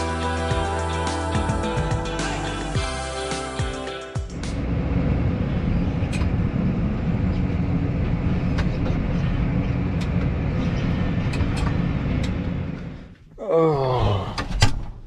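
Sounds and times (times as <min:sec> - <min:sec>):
diesel tractor engine running: 0:04.2 - 0:13.2.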